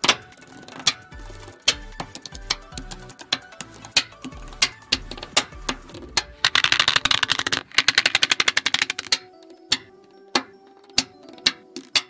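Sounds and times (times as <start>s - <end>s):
magnetic balls clicking: 0.0s - 12.0s.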